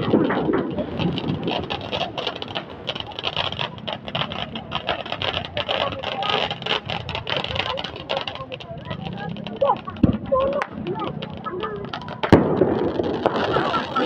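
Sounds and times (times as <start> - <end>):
firework fountains hissing and crackling: 0.0 - 14.0.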